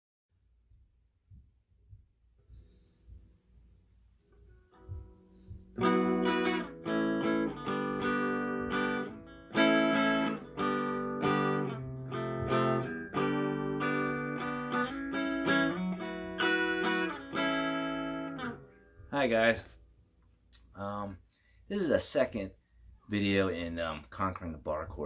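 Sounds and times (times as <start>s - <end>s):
electric guitar strumming chords: 4.3s - 19.6s.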